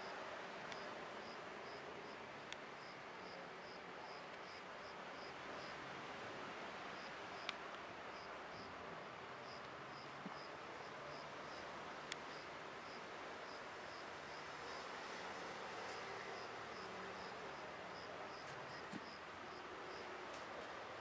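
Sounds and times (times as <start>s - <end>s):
low hiss and hum: 0.0s - 21.0s
cricket chirping: 15.9s - 20.1s.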